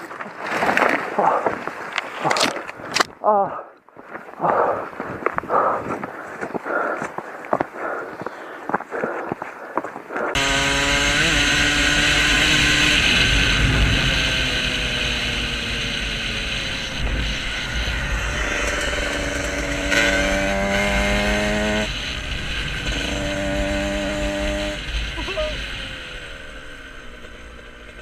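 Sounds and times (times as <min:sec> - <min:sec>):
rushing wind noise: 0:10.3 - 0:25.2
dirt bike engine running hard: 0:10.3 - 0:28.0.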